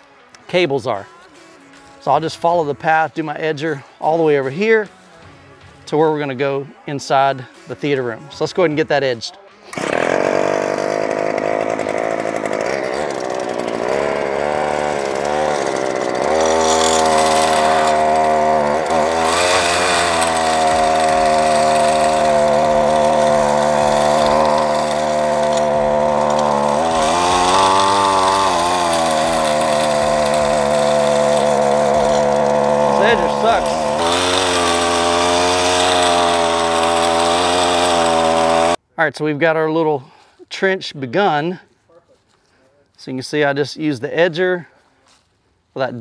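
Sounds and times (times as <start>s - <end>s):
lawn edger motor running: 9.7s - 38.8s.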